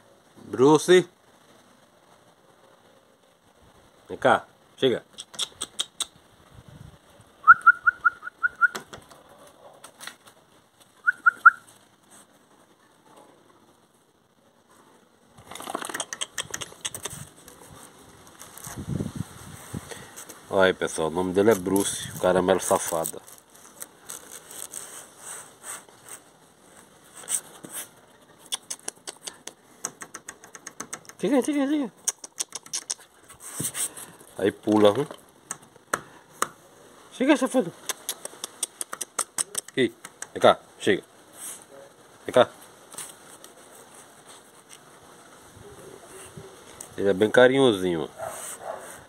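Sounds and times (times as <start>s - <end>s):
person making squeaky kissing calls: 5.1s - 6.2s, 7.5s - 9.0s, 15.8s - 17.4s, 28.4s - 31.2s, 32.0s - 33.2s, 37.8s - 40.4s
sharp clicks: 5.1s - 6.2s, 15.6s - 17.3s, 28.4s - 31.3s, 32.0s - 33.1s, 37.8s - 40.4s
dog sniffing: 15.9s - 17.9s, 24.2s - 26.3s, 27.1s - 31.2s, 32.0s - 34.2s, 48.2s - 49.0s
soft rustling: 17.0s - 28.4s, 41.2s - 47.0s.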